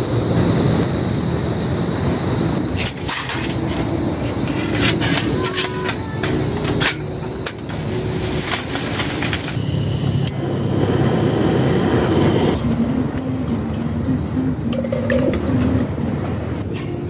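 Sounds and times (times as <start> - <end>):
steady rushing background: 0.0 - 17.0
steel plates clanking: 2.7 - 9.6.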